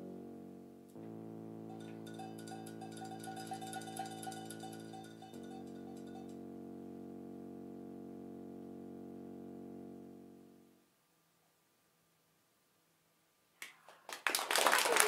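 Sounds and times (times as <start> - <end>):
band holding sustained chord: 0.0 - 10.8
light taps and short notes: 0.9 - 6.4.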